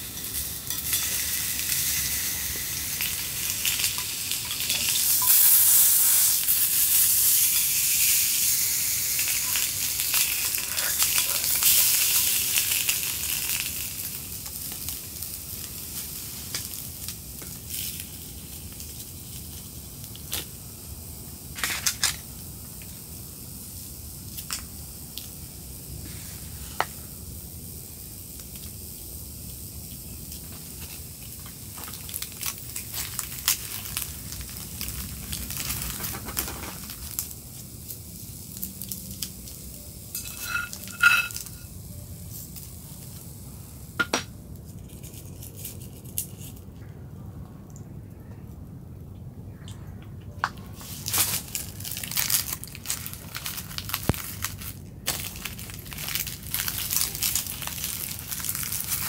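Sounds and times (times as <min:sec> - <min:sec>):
steady soft hiss: 0:00.0 - 0:44.8
dried seaweed crinkling: 0:30.4 - 0:41.6, 0:50.6 - 0:59.0.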